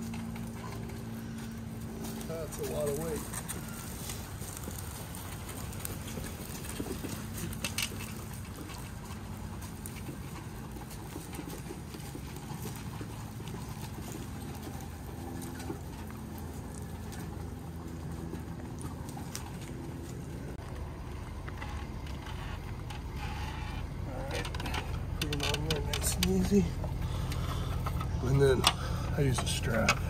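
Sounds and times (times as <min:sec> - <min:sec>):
plastic wheels rolling over leaves: 0:00.0 - 0:30.0
footsteps on leaves: 0:01.2 - 0:07.6.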